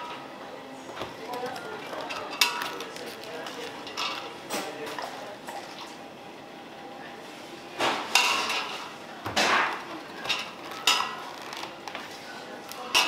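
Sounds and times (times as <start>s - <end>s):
kitchenware clattering: 1.3s - 5.1s, 7.8s - 11.5s, 12.8s - 13.0s.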